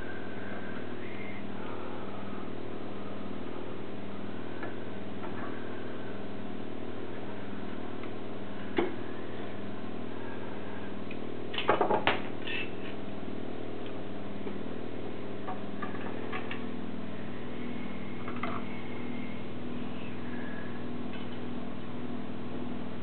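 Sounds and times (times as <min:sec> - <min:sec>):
steady hum: 0:00.0 - 0:23.0.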